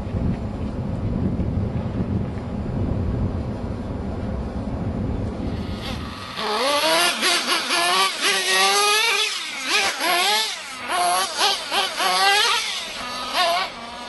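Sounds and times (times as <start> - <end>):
small engine revving: 5.4 - 14.0.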